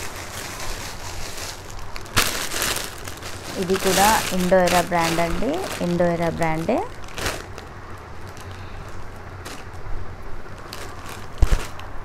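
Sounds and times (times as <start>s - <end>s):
cloth rustling: 0.0s - 9.8s.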